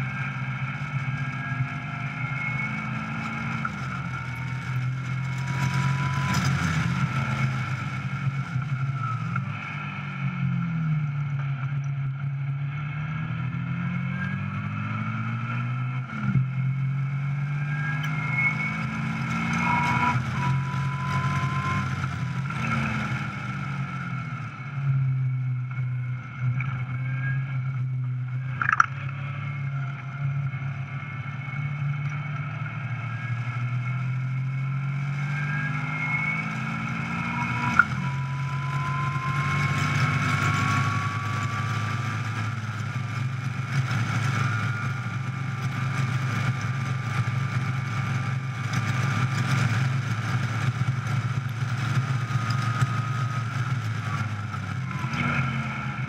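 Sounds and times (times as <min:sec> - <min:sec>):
car engine running under load: 0:00.0 - 0:56.0
sharp click: 0:28.6 - 0:29.0.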